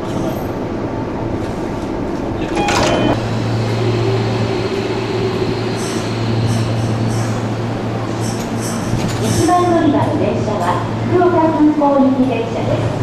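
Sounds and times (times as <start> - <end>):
electric train humming: 0.2 - 13.0
platform doors closing: 1.3 - 11.1.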